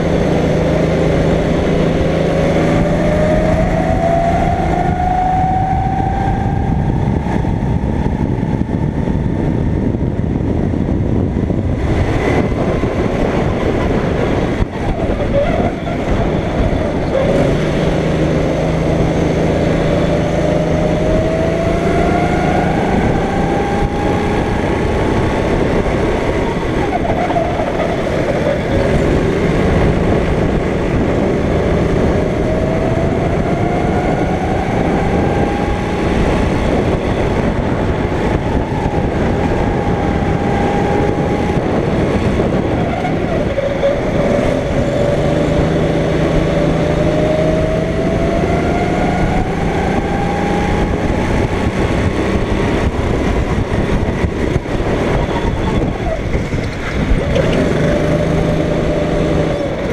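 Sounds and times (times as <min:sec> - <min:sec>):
go-kart engine revving: 0:00.0 - 0:59.9.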